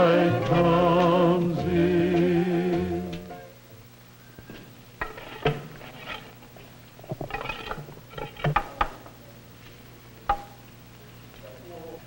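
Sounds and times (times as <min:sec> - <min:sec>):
tools knocking and clinking: 0:10.3 - 0:10.6.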